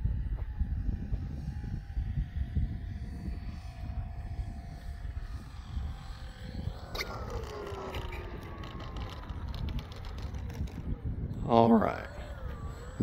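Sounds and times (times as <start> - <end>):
faint whine falling in pitch: 0.0 - 13.0
wind buffeting the microphone: 0.0 - 13.0.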